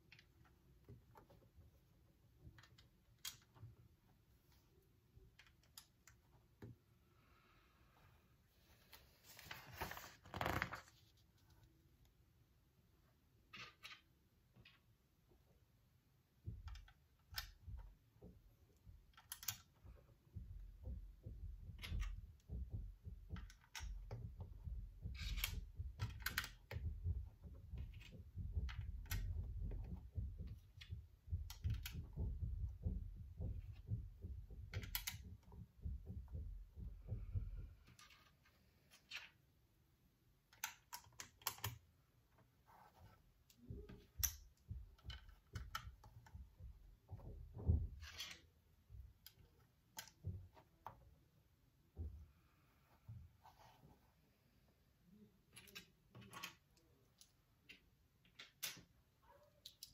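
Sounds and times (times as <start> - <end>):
plastic bricks clicking together: 19.1 - 19.8.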